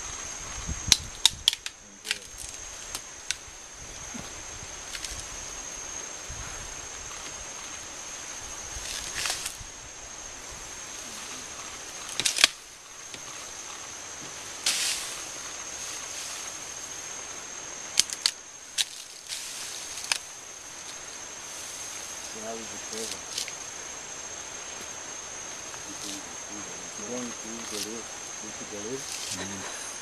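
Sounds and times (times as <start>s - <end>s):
high insect drone: 0.0s - 30.0s
bamboo stems cracking: 0.9s - 3.4s, 12.0s - 13.4s, 17.9s - 20.3s
rustling: 1.5s - 29.8s.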